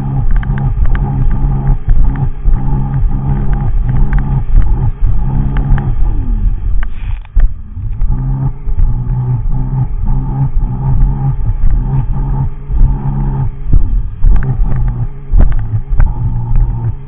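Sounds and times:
watercraft engine pulsing: 0:00.0 - 0:17.0.

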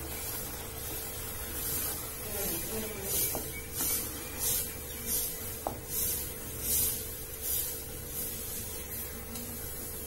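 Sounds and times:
wooden spatula scraping a pot: 0:01.6 - 0:09.1.

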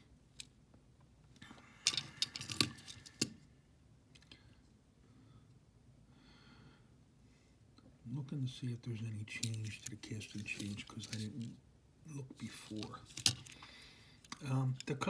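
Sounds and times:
toy cars clicking and clattering: 0:01.8 - 0:03.4, 0:09.3 - 0:11.6, 0:12.6 - 0:15.0.

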